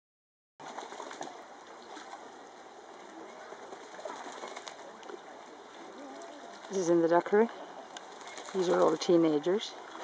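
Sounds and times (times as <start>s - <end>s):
ducks splashing water: 0.6s - 10.0s.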